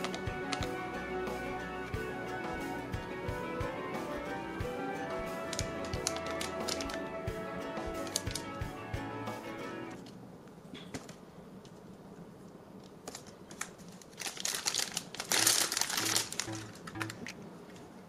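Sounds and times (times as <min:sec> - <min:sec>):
plastic wrapper crinkling: 0:05.5 - 0:07.0, 0:08.0 - 0:08.5, 0:13.0 - 0:17.4.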